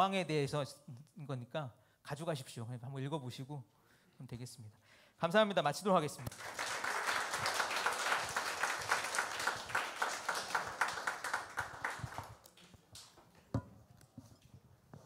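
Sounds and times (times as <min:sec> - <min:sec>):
audience applauding: 0:06.3 - 0:13.1.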